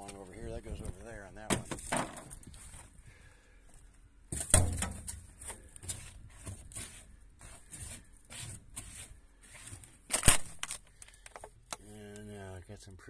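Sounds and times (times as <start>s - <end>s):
shoe scraping dirt on metal: 4.3s - 10.1s.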